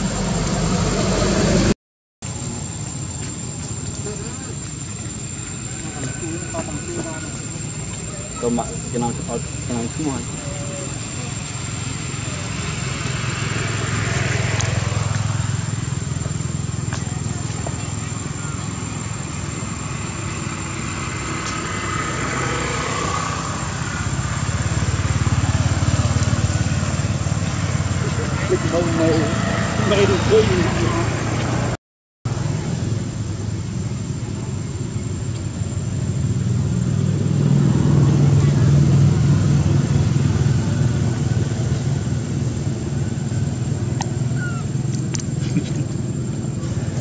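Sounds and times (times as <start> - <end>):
small engine idling: 2.3 - 31.0, 38.2 - 47.0.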